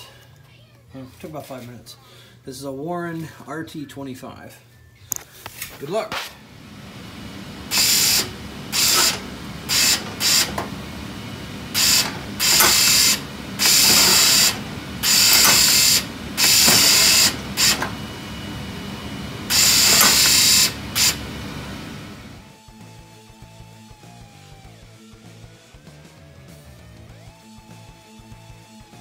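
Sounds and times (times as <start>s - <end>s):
steady low hum: 6.3s - 22.5s
winch motor whirring: 6.5s - 22.5s.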